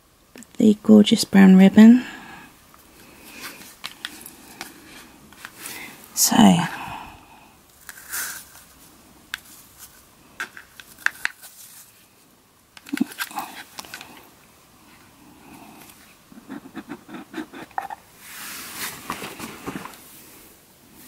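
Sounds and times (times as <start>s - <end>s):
cardboard tube rustling and clicking: 18.8s - 20.1s.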